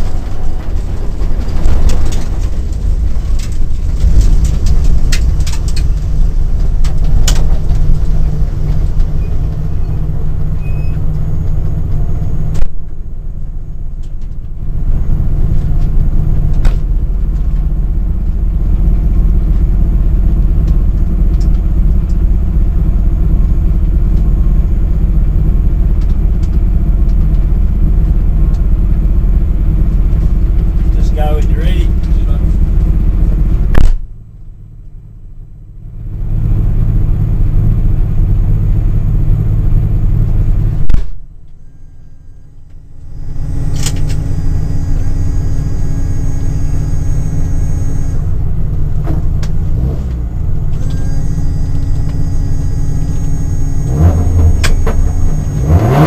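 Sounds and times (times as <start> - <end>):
clicks and rattles: 0.0 - 9.1
car engine idling: 0.0 - 56.0.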